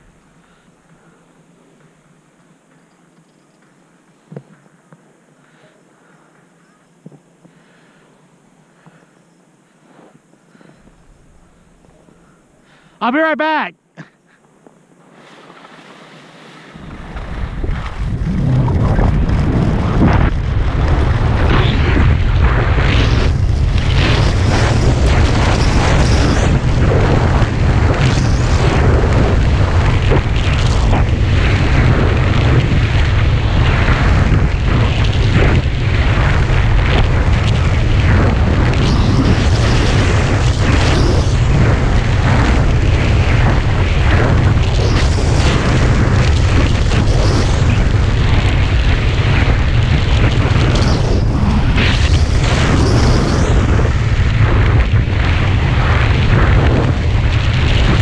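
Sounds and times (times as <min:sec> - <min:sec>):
wind buffeting microphone: 0:16.8 - 0:58.0.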